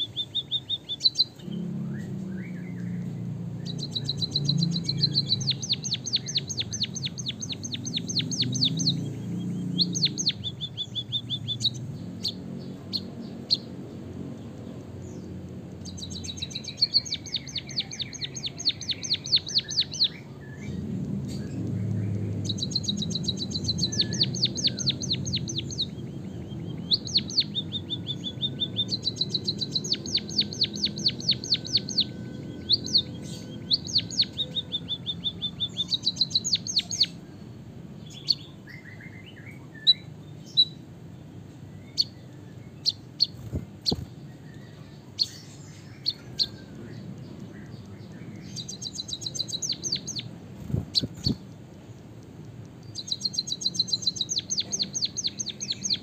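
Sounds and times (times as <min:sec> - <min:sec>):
bird trilling song: 0:00.0 - 0:56.0
single bird chirps: 0:15.8 - 0:37.2, 0:42.8 - 0:51.4.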